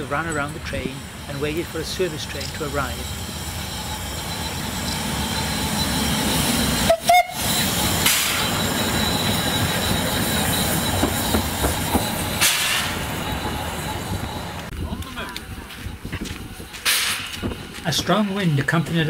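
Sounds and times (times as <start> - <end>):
steam locomotive moving slowly: 0.0 - 19.0
steam whistle toot: 6.7 - 8.5
wind buffeting microphone: 13.0 - 18.2.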